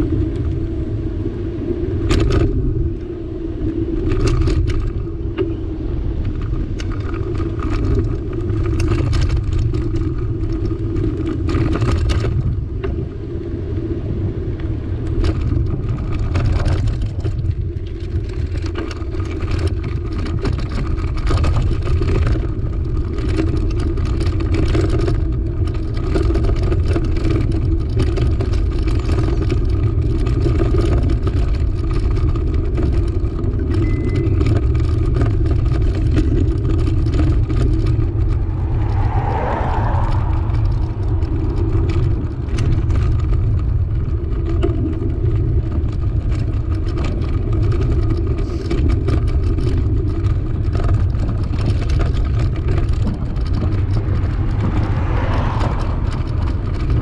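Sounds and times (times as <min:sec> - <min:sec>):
wind rush on microphone: 0:00.0 - 0:57.0
car passing: 0:36.7 - 0:44.3, 0:51.8 - 0:57.0.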